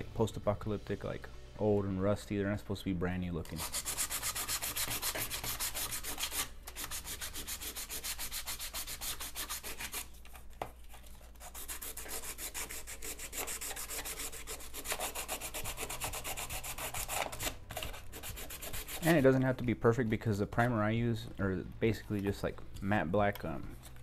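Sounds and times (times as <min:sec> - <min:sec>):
sandpaper scraping toy: 0:03.5 - 0:10.1, 0:11.4 - 0:19.4.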